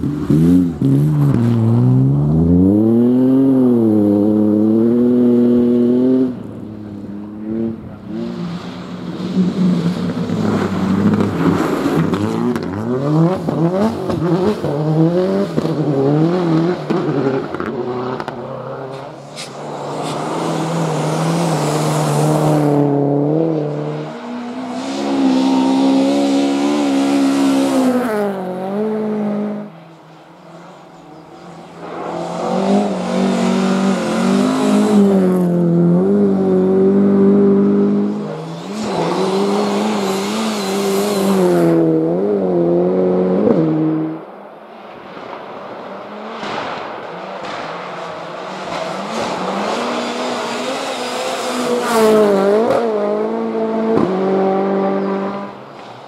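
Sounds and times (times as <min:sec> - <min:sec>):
rally car engines revving: 0:00.0 - 0:56.0
rushing hiss of passing cars: 0:18.9 - 0:22.5.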